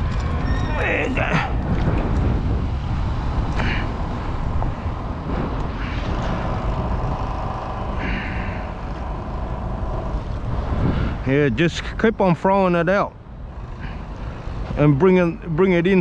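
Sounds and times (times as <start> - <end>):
engine whine: 0.0 - 16.0
heavy truck traffic rumble: 0.0 - 16.0.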